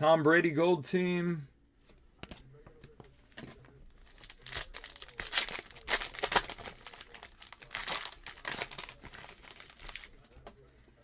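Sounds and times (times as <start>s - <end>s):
foil wrapper crinkling: 4.0s - 10.2s.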